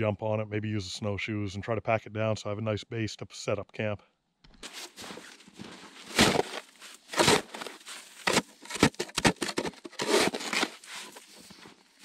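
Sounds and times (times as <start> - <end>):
plastic shovel scraping crusted snow: 4.6 - 12.0.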